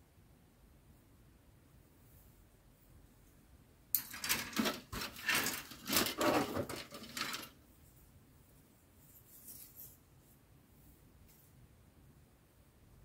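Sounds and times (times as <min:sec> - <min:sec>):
plastic sprues rattling and scraping: 0:04.0 - 0:07.6.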